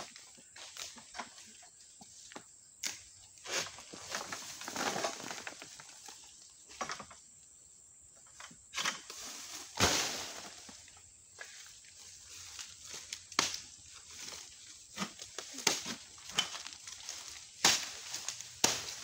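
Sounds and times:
palm fronds rustling: 0:03.4 - 0:07.0, 0:08.8 - 0:19.0.

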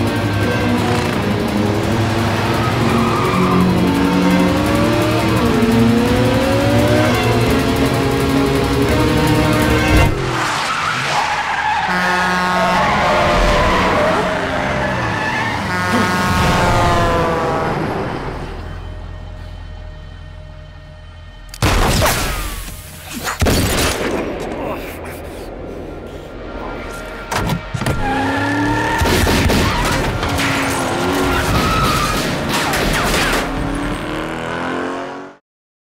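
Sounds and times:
car engine revving: 0:00.0 - 0:19.3, 0:26.9 - 0:35.4
tyres skidding and squealing: 0:00.0 - 0:35.0
background score music: 0:16.4 - 0:24.6
gunshots: 0:29.0 - 0:30.7.

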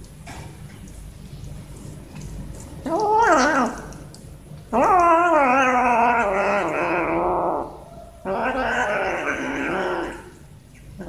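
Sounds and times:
kitten growling: 0:02.8 - 0:04.1, 0:04.7 - 0:10.4.

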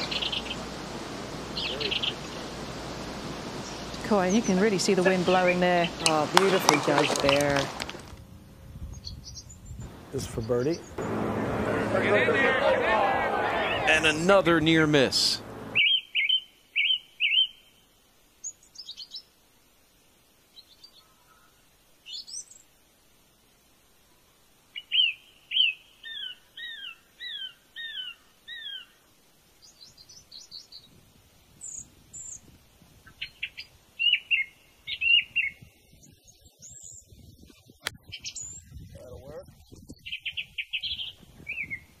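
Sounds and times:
birds chirping: 0:00.0 - 0:08.2, 0:08.8 - 0:17.8, 0:24.8 - 0:29.0, 0:31.6 - 0:42.0.

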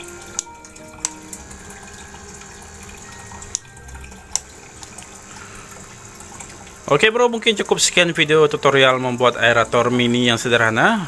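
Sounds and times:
sharp ticks: 0:00.0 - 0:06.8
aquarium water bubbling: 0:00.0 - 0:11.0.

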